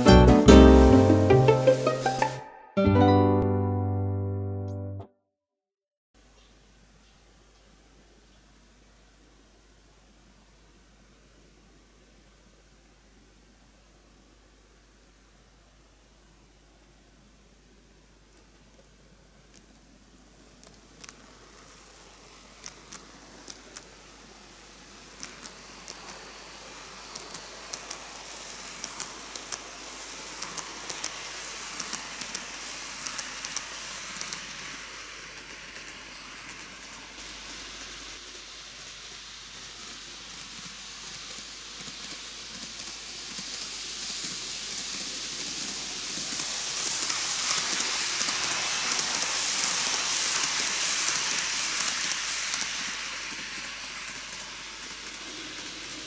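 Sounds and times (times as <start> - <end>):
model train whirring: 17.8 - 56.0
rail joint clicks: 25.0 - 38.1, 39.8 - 56.0.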